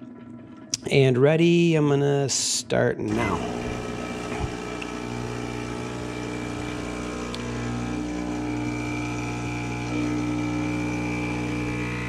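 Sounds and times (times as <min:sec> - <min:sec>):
espresso machine pump humming: 0:03.1 - 0:12.0.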